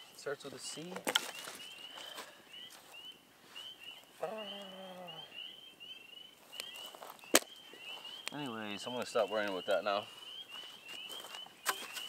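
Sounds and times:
man humming low: 4.2 - 5.3
sharp crack: 7.3 - 7.6.

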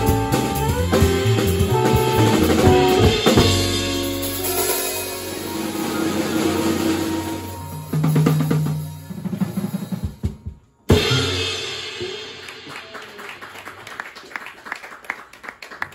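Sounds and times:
jazz quartet playing: 0.0 - 12.7
drum fill: 0.0 - 13.1
people clapping: 12.4 - 15.9.

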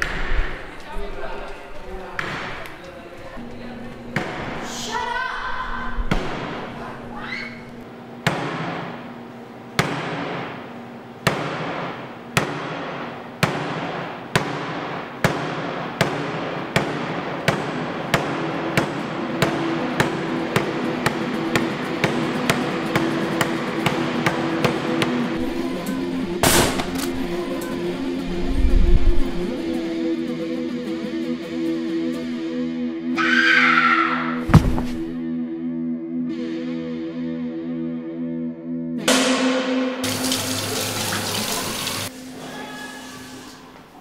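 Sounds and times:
sharp percussive hits: 39.0 - 40.6.

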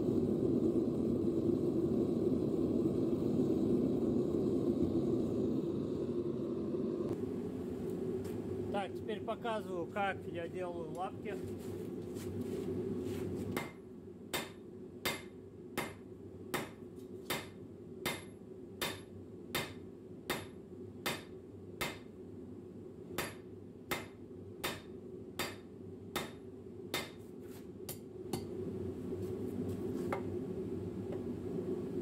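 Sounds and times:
hammer ringing on hot steel: 13.6 - 16.0, 16.6 - 22.1, 23.2 - 27.2.

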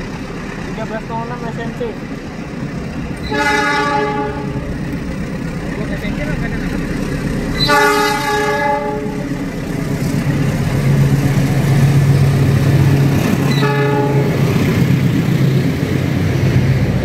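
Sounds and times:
locomotive engine humming: 0.0 - 17.0
train horn blast: 3.2 - 4.7, 7.6 - 9.2, 13.5 - 14.5.

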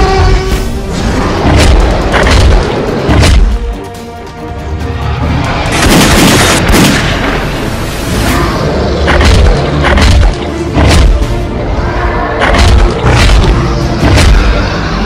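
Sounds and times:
dramatic film music: 0.0 - 15.0
explosive booms and bangs: 0.9 - 3.8, 5.7 - 7.5, 12.4 - 14.7.

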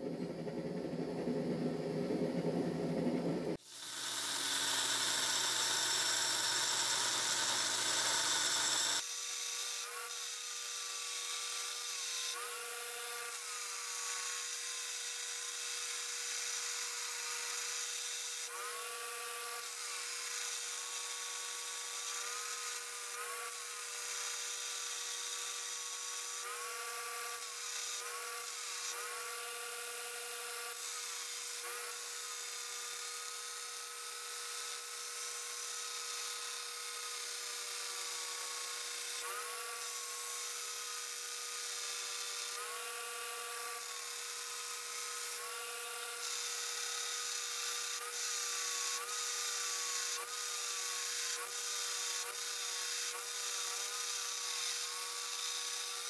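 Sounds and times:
belt grinder grinding steel: 3.6 - 9.0.

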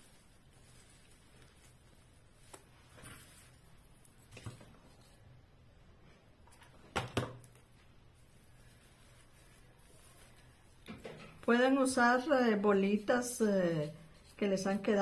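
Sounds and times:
soft rustles: 0.0 - 5.2, 7.7 - 10.9.

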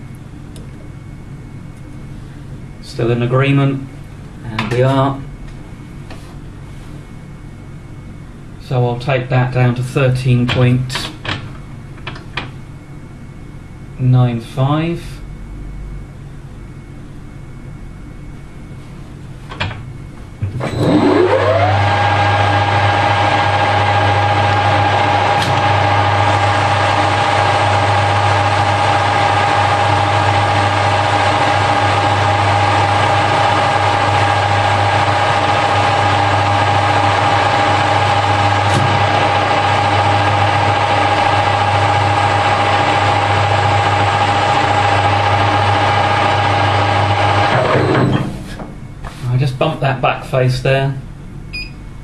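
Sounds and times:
low hum: 15.2 - 49.0
metal lathe whining: 20.4 - 48.6.

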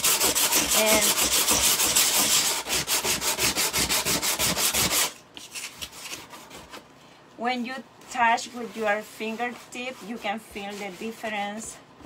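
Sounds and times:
sandpaper rubbing by hand: 0.0 - 6.8.

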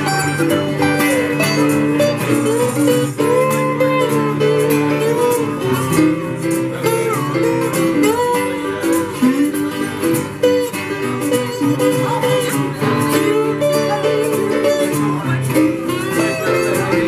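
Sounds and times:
acoustic guitars: 0.0 - 17.0
bending melodic lead line: 0.0 - 17.0
keyboard: 0.0 - 17.0.

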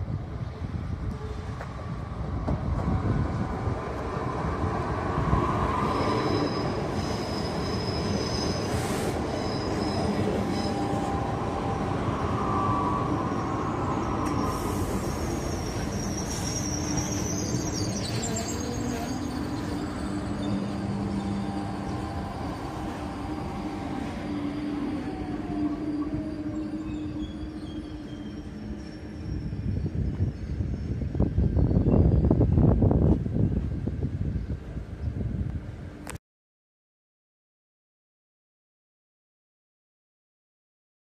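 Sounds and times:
train rumbling on track: 0.0 - 36.2
train wheels squealing: 5.1 - 32.8.

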